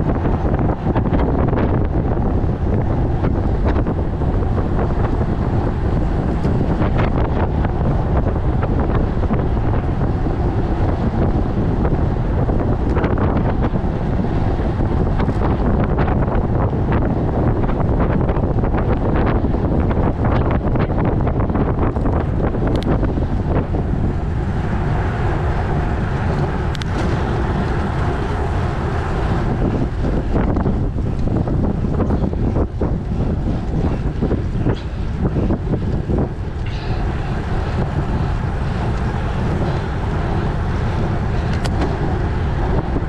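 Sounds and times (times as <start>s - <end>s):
wind buffeting microphone: 0.0s - 43.0s.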